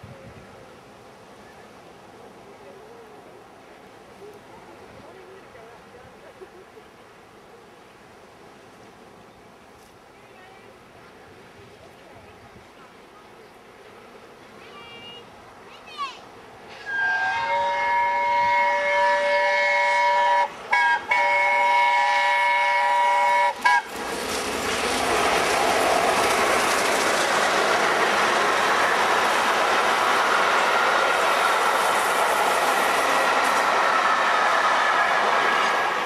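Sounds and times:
train coaches rushing on rails: 0:10.8 - 0:36.0
steam locomotive chime whistle: 0:16.8 - 0:23.9.

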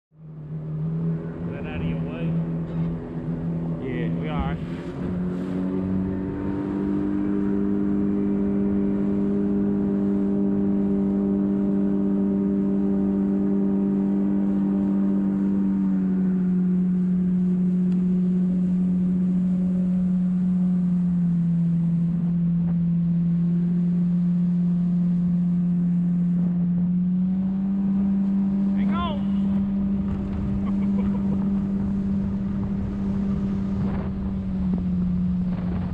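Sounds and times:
jet boat engine running: 0:00.1 - 0:35.9.

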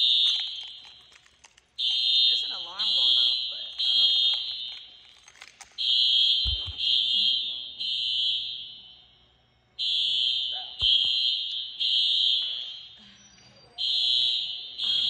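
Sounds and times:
electronic alarm blasts: 0:00.0 - 0:05.0, 0:05.8 - 0:15.0.

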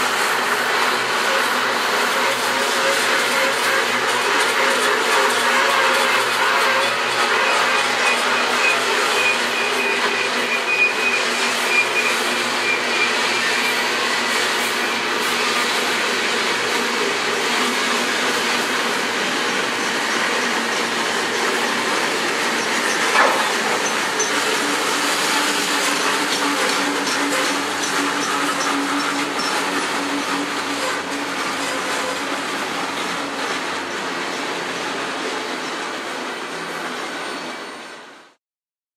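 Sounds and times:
train wheels rumbling on rails: 0:00.0 - 0:38.2
sharp clack: 0:22.9 - 0:24.4.

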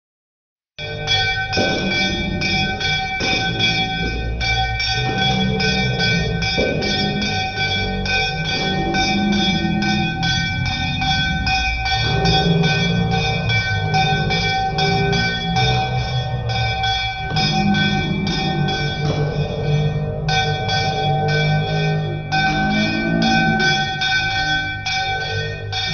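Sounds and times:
brass hand bell ringing fast: 0:00.8 - 0:25.9.

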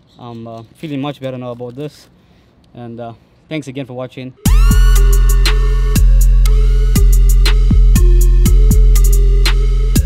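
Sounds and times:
electronic music with steady beat: 0:04.4 - 0:10.0.

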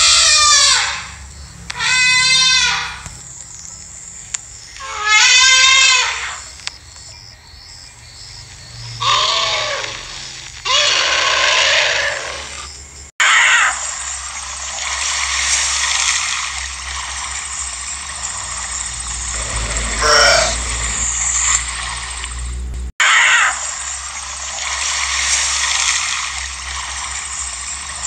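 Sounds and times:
wavering animal cries: 0:00.0 - 0:03.0, 0:04.8 - 0:06.5, 0:09.0 - 0:12.6, 0:19.2 - 0:21.2.

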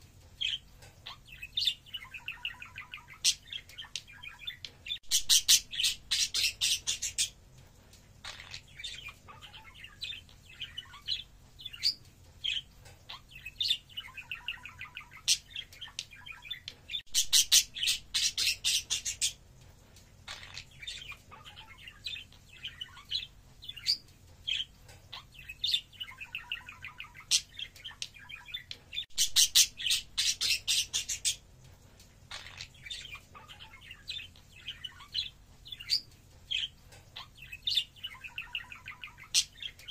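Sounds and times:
budgerigars chattering: 0:01.1 - 0:07.3, 0:13.1 - 0:19.4, 0:20.3 - 0:31.4.

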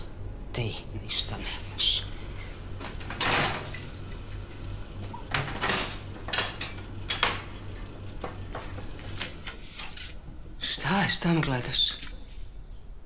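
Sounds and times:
dishes clinking and clattering: 0:03.0 - 0:04.0, 0:05.3 - 0:08.8.

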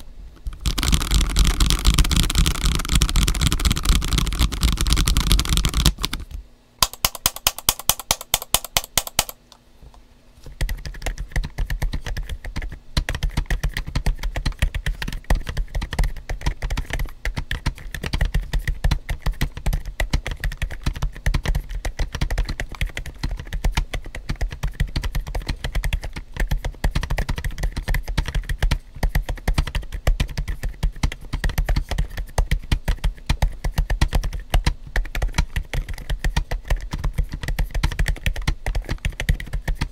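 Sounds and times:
quiet mechanical keyboard typing: 0:00.4 - 0:09.4, 0:10.5 - 0:39.9.

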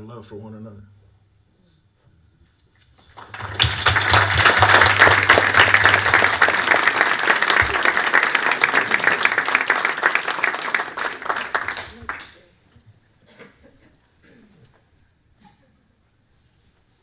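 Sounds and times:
audience applauding: 0:03.0 - 0:12.5.

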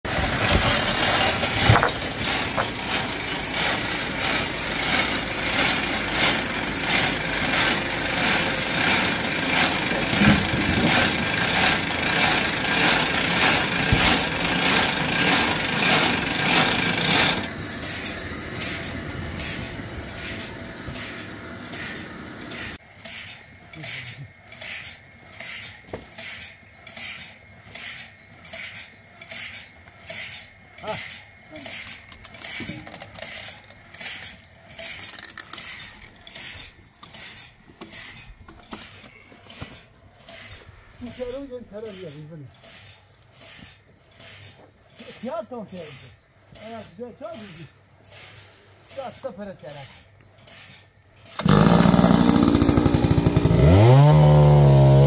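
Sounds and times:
sawmill cutting a log: 0:00.1 - 0:27.2, 0:49.0 - 0:55.0.

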